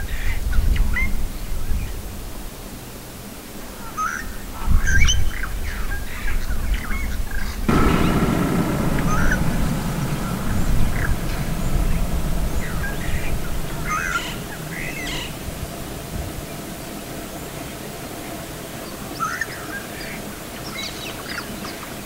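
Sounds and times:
low background noise: 7.7s - 18.8s.

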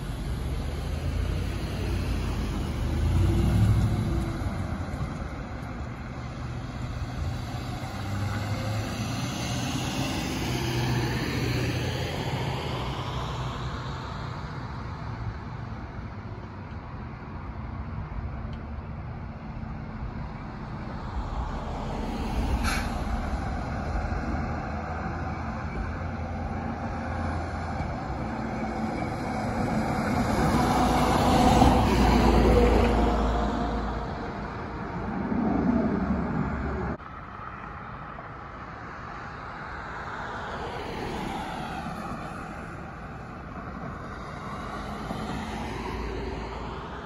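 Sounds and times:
road traffic: 0.0s - 47.0s
truck rumbling past: 19.8s - 37.0s
short hiss: 22.6s - 23.0s.

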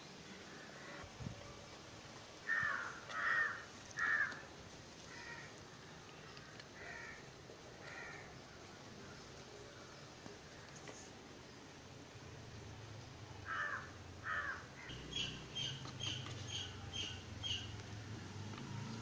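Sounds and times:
crows cawing: 2.4s - 4.5s, 5.1s - 5.6s, 6.8s - 8.3s, 13.4s - 15.0s.

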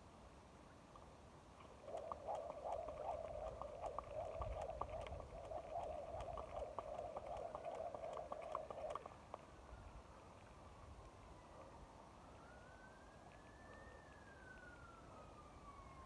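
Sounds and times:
rope slapping pavement: 1.8s - 9.2s
jump rope whirring: 1.9s - 9.1s.

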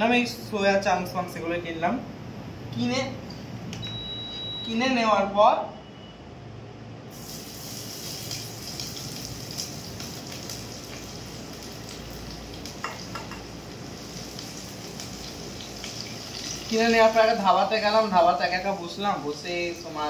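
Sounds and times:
food sizzling in hot oil: 7.1s - 20.0s.

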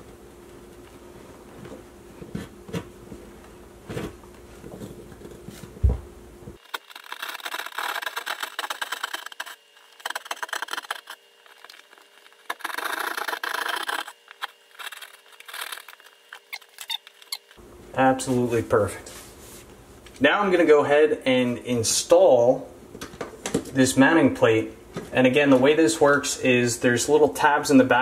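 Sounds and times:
hand saw rasping through drywall: 6.8s - 11.9s.

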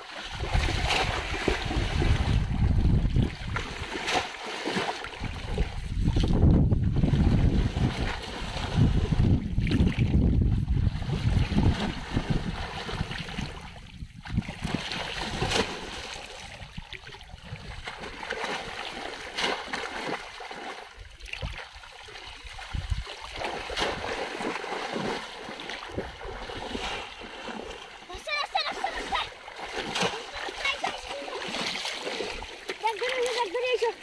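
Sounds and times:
water sloshing as people wade: 0.0s - 34.0s
wind rumble on microphone: 0.3s - 4.1s, 5.1s - 18.8s, 22.3s - 24.3s, 25.8s - 27.2s
fish traps plunging into water: 14.3s - 16.6s, 22.7s - 27.9s, 28.6s - 33.4s.

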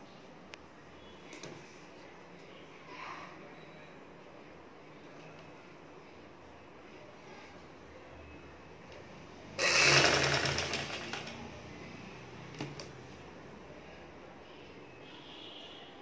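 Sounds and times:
sewing machine stitching: 9.6s - 11.4s.

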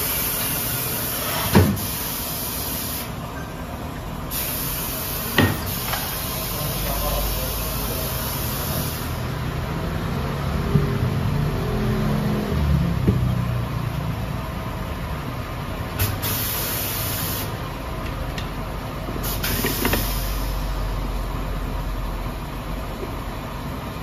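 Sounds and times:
compressed air hiss: 0.0s - 3.2s, 4.3s - 9.3s, 16.0s - 17.6s, 19.2s - 20.9s.

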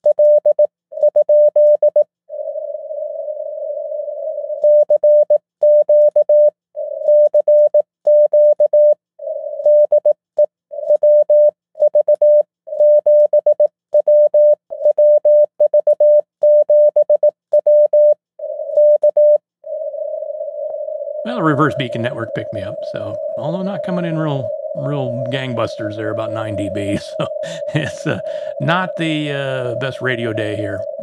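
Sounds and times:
soft radio hiss: 21.3s - 30.8s
morse code tone: 21.3s - 31.0s.

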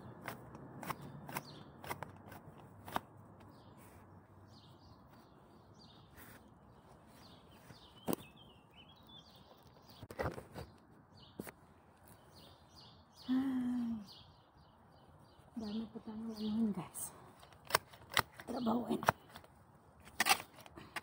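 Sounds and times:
hand-weeding clicks: 0.0s - 3.1s, 17.4s - 21.0s
small birds chirping: 0.0s - 21.0s.

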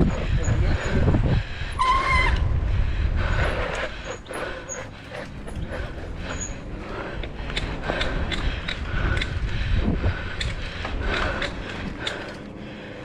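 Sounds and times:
wind and tyre rumble: 0.0s - 13.0s
high squeal: 1.8s - 2.5s
bike rattling clicks: 3.3s - 13.0s.

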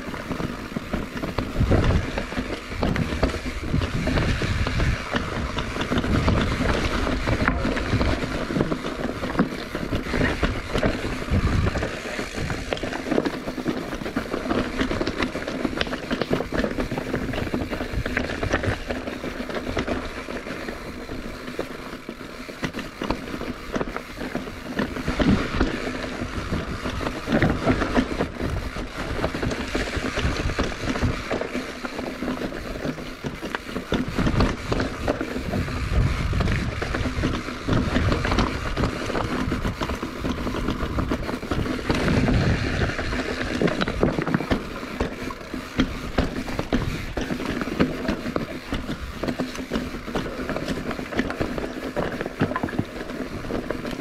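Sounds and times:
wind buffeting microphone: 0.0s - 12.8s, 32.4s - 51.7s
bicycle tyres rolling: 0.0s - 54.0s.

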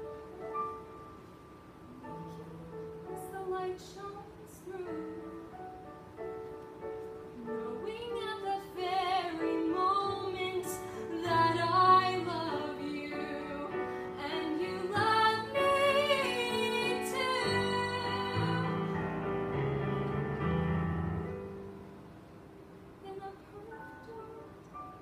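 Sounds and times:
girl singing: 2.0s - 5.6s, 7.4s - 18.8s, 23.0s - 24.6s
instrumental backing track: 12.7s - 22.2s.

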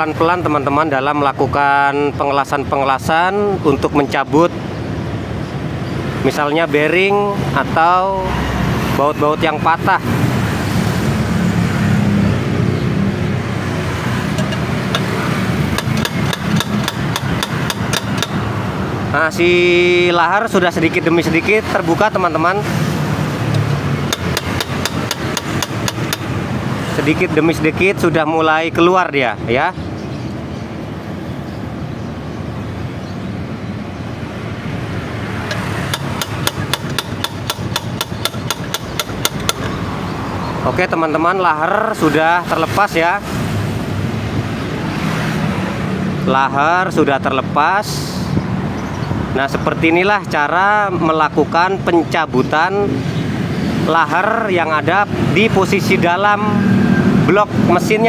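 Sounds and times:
steel pipe knocking on metal rod: 14.3s - 18.4s, 23.5s - 26.3s, 35.5s - 39.8s
light metal taps: 14.4s - 15.1s, 35.5s - 39.8s.

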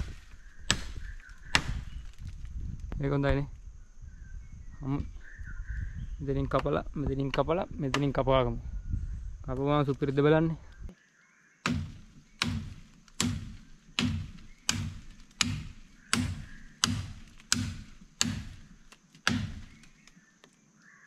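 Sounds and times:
machete chopping wood: 0.0s - 2.5s, 11.6s - 20.2s.

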